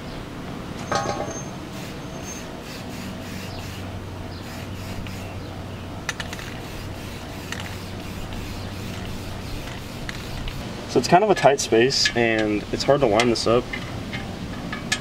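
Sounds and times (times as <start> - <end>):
spray can hissing: 2.6 - 5.4, 6.1 - 10.7
spray can ball rattling: 6.1 - 10.6.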